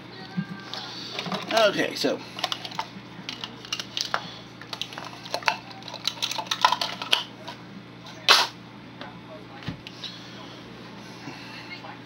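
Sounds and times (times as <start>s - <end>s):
kitchen utensils clattering: 4.8s - 7.2s.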